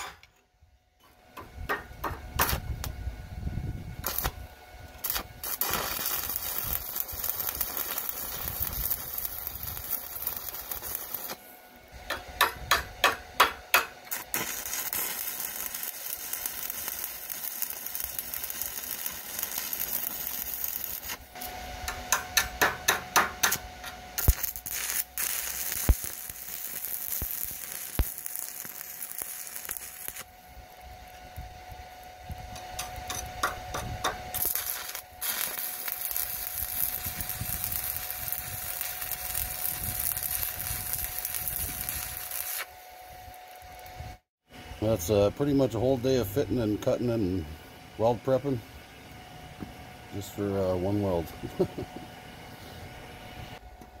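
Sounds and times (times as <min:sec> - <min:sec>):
welding arc crackling hiss: 0:04.0 - 0:43.9.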